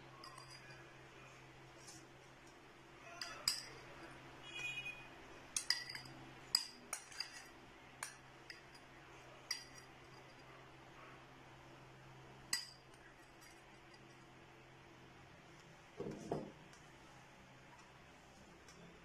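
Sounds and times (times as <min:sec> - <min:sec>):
metal spoon clinking on glass bowl: 0:00.1 - 0:00.9, 0:03.2 - 0:03.8, 0:05.5 - 0:08.9, 0:09.5 - 0:10.4, 0:12.5 - 0:14.2.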